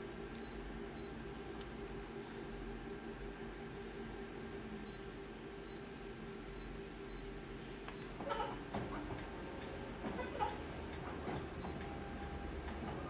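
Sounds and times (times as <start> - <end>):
copier humming: 0.0 - 13.0
copier scanning mechanical noise: 4.7 - 13.0.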